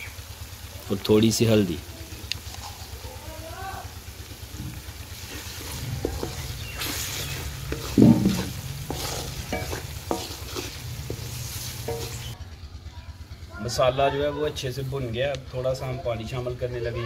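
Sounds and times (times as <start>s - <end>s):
oil sizzling in a pot: 0.0s - 12.5s
spatula scraping a pot: 5.2s - 12.4s
spatula knocking on pot: 6.0s - 12.4s.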